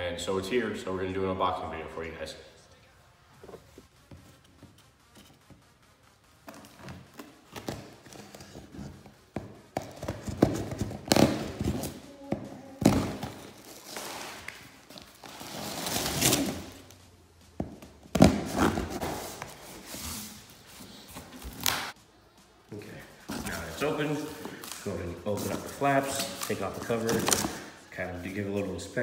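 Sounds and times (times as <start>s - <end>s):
box thumps: 7.0s - 13.6s, 17.6s - 19.3s.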